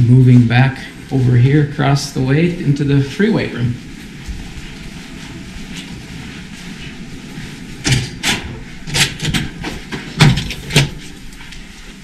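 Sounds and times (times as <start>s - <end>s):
soft footsteps: 0.0s - 12.0s
door push bar clacks and thuds: 7.9s - 11.0s.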